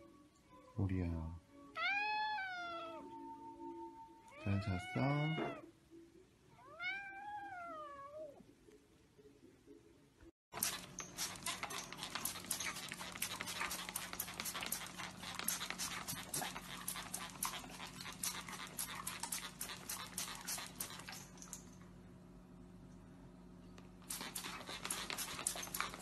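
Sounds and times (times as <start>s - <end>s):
dog panting: 10.6s - 21.6s, 24.1s - 26.0s
spray bottle squirting: 10.6s - 21.6s, 24.0s - 26.0s.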